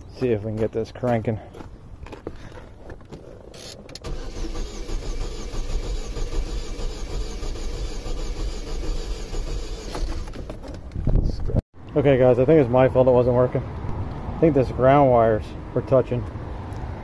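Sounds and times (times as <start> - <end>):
car engine cranking on starter: 4.0 - 10.4.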